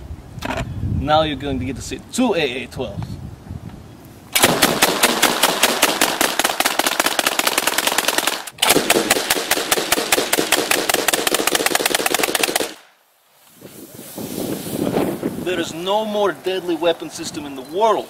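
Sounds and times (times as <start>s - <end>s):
automatic shotgun firing bursts: 4.4s - 12.8s.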